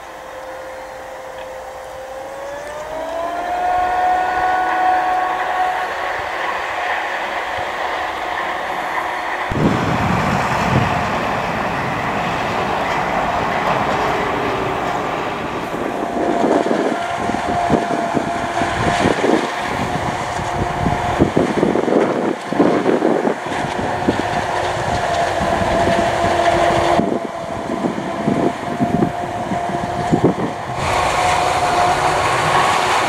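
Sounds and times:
high machine whine: 0:00.0 - 0:33.0.

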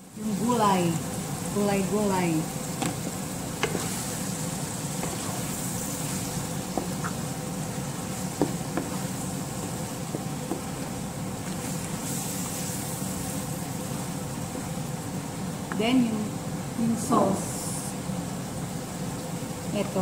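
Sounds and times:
meat sizzling in a frying pan: 0:00.0 - 0:20.0
steady low hum: 0:00.0 - 0:20.0
spatula tapping and scraping pan: 0:03.6 - 0:03.9, 0:06.7 - 0:07.2, 0:08.4 - 0:09.1, 0:10.1 - 0:10.8.

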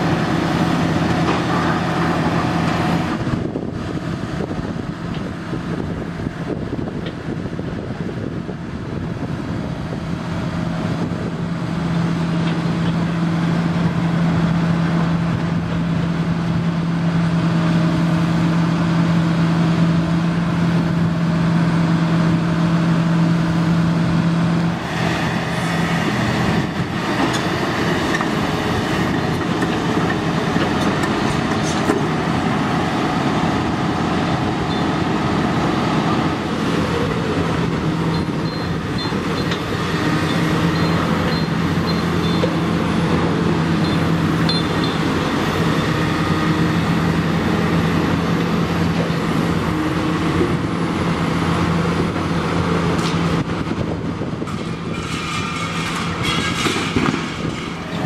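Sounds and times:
excavator engine hum: 0:00.0 - 0:58.0
rough rattling noise: 0:54.4 - 0:58.0.

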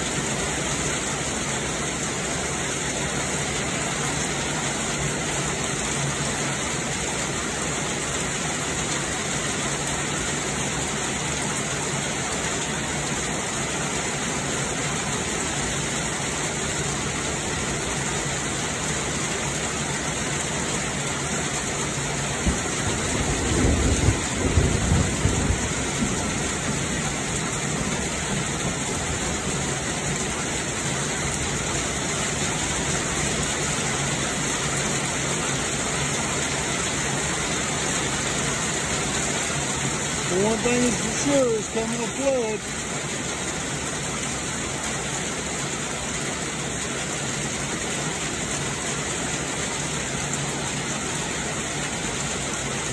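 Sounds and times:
heavy rain falling: 0:00.0 - 0:52.9
low thunder rumble: 0:23.2 - 0:26.8.

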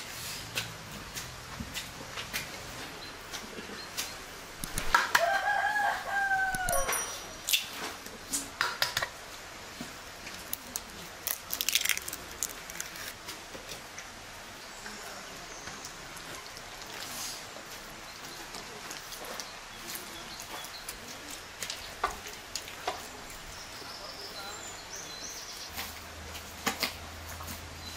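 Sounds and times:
rooster crowing: 0:05.0 - 0:07.1
eggs cracking into metal bowl: 0:10.5 - 0:13.2.

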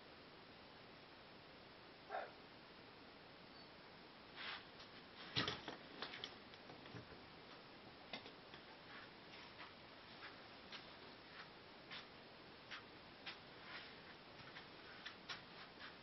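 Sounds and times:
faint clicks and taps: 0:04.8 - 0:12.1.

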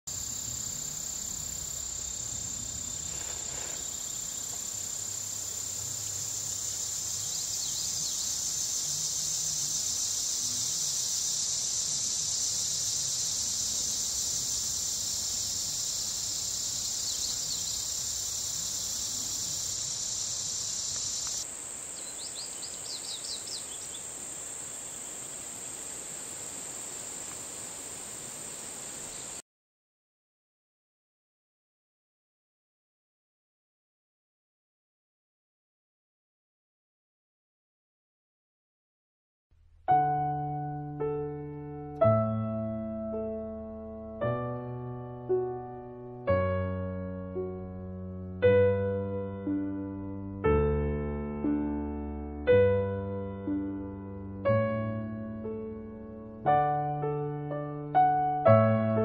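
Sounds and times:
insects singing: 0:00.1 - 0:29.4.

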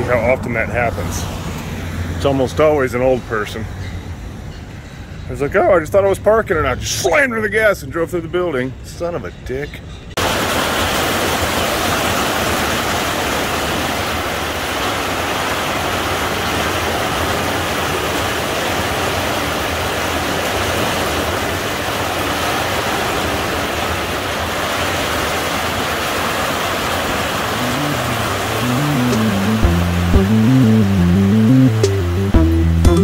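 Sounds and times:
heavy rain pouring: 0:10.2 - 0:33.0.

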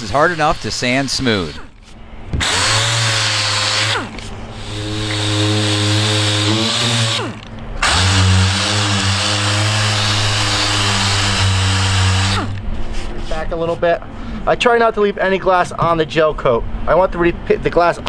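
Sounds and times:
palm sander sanding: 0:00.0 - 0:01.7, 0:02.4 - 0:13.8.

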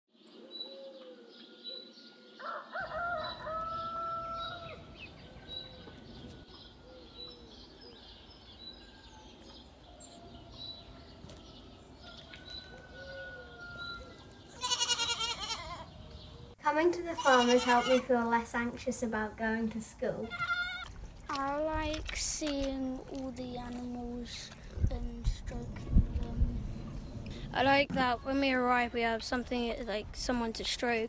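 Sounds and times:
rooster crowing: 0:02.4 - 0:06.0, 0:12.0 - 0:14.2
goat bleating: 0:14.5 - 0:15.9, 0:17.1 - 0:18.0, 0:20.2 - 0:20.9.

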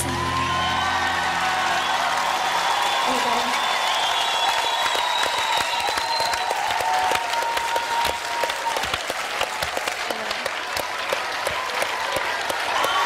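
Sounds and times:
large audience applauding: 0:00.0 - 0:13.0.

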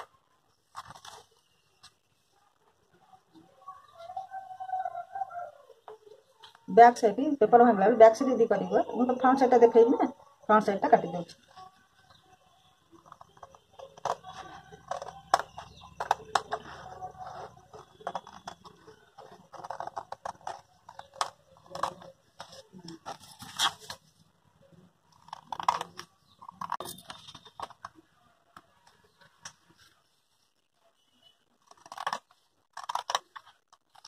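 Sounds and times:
scissors snipping paper: 0:13.0 - 0:24.0, 0:31.6 - 0:34.0.

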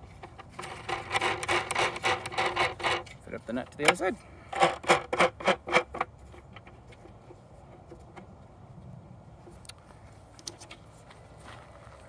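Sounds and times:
hands scraping wood: 0:00.0 - 0:03.2, 0:03.8 - 0:08.3.

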